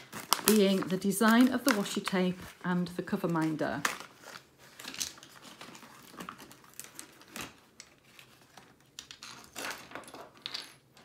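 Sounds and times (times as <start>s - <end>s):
packaging rustling and crinkling: 0.0s - 10.4s
plastic pieces clicking on table: 8.8s - 11.0s.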